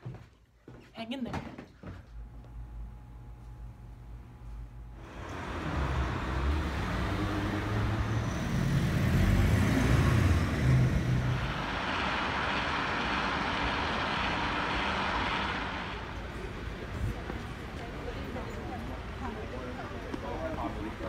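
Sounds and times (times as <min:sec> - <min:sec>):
vehicle engine rumble: 0:02.2 - 0:21.0
road noise hiss: 0:05.0 - 0:21.0.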